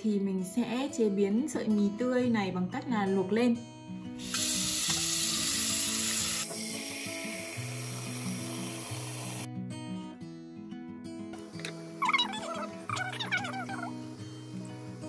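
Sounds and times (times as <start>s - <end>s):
soft background music: 0.0s - 15.0s
tap water pouring into metal pot: 4.2s - 9.5s.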